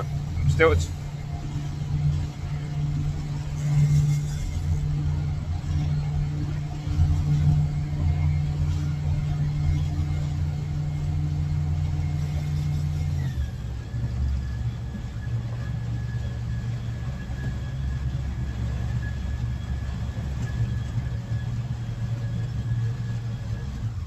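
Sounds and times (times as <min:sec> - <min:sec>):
outboard engine running: 0:00.0 - 0:24.0.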